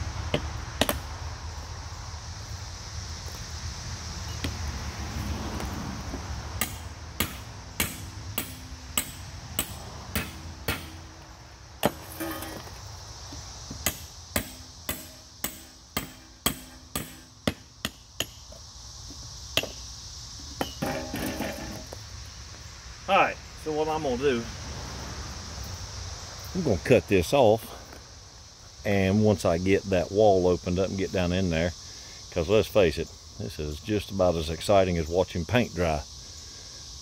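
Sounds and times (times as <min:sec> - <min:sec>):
hammer beating on steel: 0:06.6 - 0:11.1, 0:13.8 - 0:18.4.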